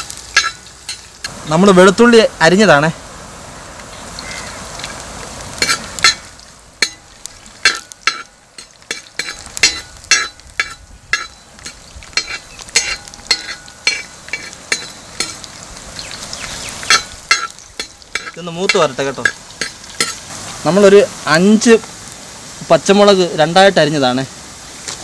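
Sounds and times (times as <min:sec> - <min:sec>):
garlic sizzling in hot oil: 0:00.0 - 0:25.0
skimmer scraping metal pan: 0:05.6 - 0:20.3.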